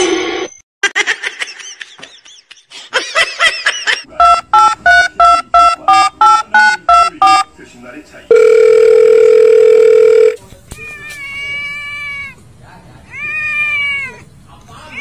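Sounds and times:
phone keypad beeps: 0:04.2 - 0:07.5.

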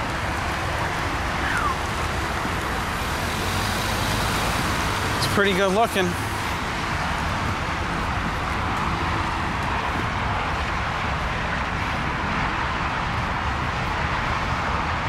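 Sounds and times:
traffic noise: 0:00.0 - 0:15.0.

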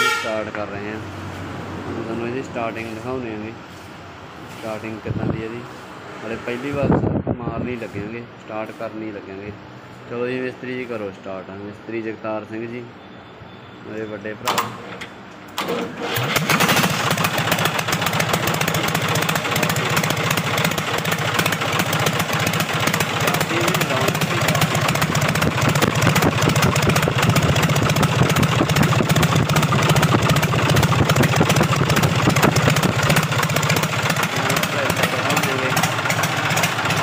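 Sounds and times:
diesel tractor engine starting: 0:14.4 - 0:37.0.

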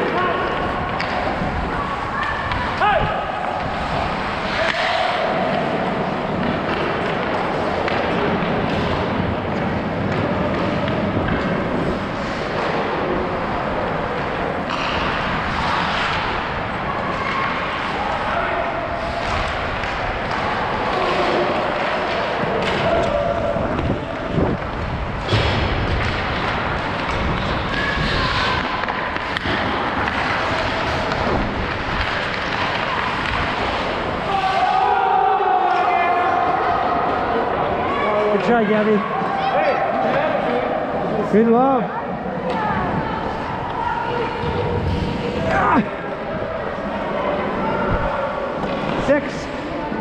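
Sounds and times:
skates scraping on ice: 0:00.0 - 0:18.3, 0:18.9 - 0:35.0, 0:42.2 - 0:50.0
wind noise: 0:22.8 - 0:34.3, 0:47.6 - 0:48.2.

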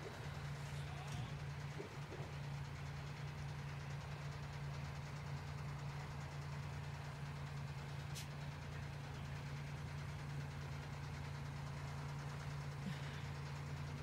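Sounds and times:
engine running with low hum: 0:00.0 - 0:14.0.

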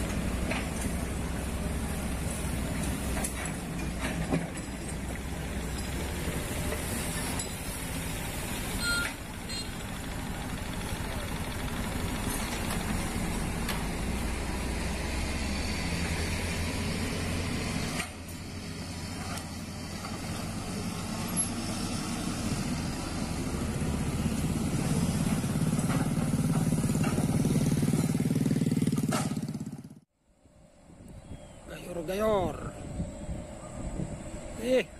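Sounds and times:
truck diesel engine running: 0:00.0 - 0:29.9
motorcycles passing: 0:00.0 - 0:30.0.

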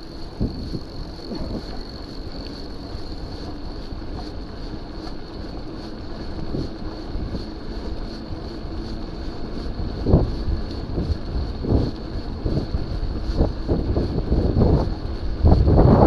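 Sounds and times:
faint high whine: 0:00.0 - 0:11.0
bike tyres rolling on tarmac: 0:00.0 - 0:16.0
wind buffeting microphone: 0:00.0 - 0:16.0.

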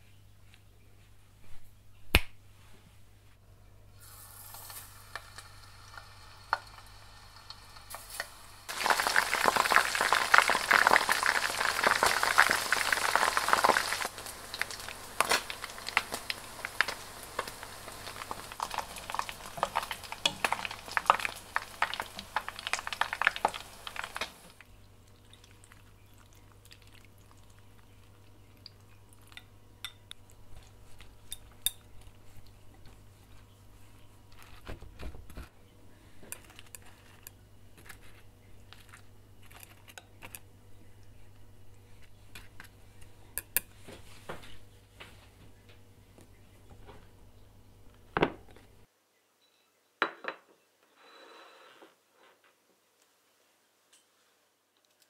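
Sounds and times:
fish sizzling in oil: 0:04.0 - 0:24.6
oil popping: 0:04.0 - 0:29.0.

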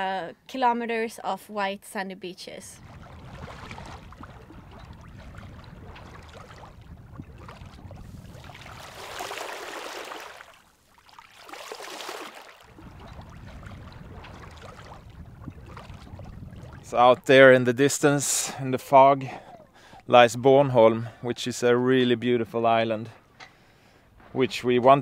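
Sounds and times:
steady low rumble: 0:02.8 - 0:09.1, 0:12.7 - 0:17.3
water splashing along boat bow: 0:02.8 - 0:25.0.

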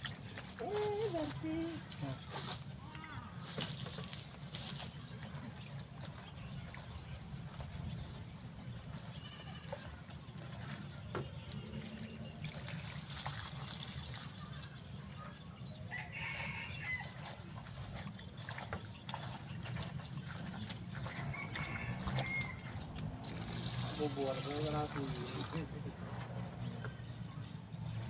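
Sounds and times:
water splashing into metal bowl: 0:11.8 - 0:14.7, 0:18.4 - 0:25.7.

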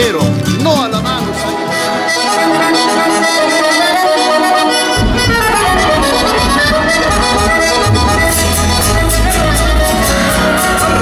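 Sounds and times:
accordion folk music: 0:00.0 - 0:11.0
bass line: 0:04.8 - 0:11.0.

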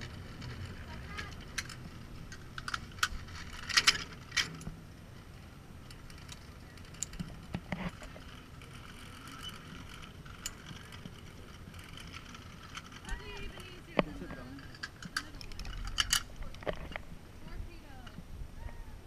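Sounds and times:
low rumble of wind: 0:00.0 - 0:19.0
metal harness hardware clinking: 0:01.2 - 0:04.8, 0:05.9 - 0:16.8.

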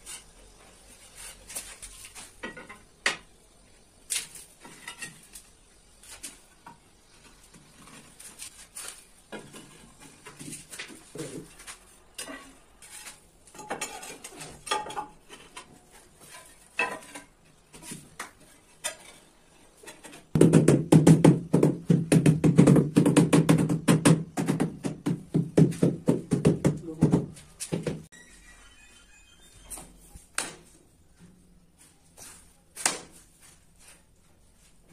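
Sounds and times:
tiles scraping: 0:04.1 - 0:06.5, 0:07.2 - 0:20.3
rubber mallet knocking tiles: 0:20.4 - 0:28.0.

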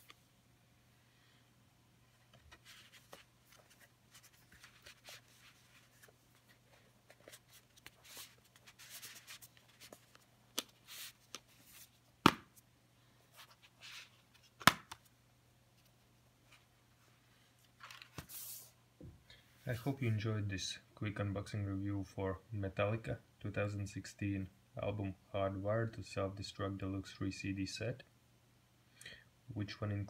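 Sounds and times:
rustling of card and plastic: 0:02.1 - 0:12.1, 0:17.6 - 0:18.7.

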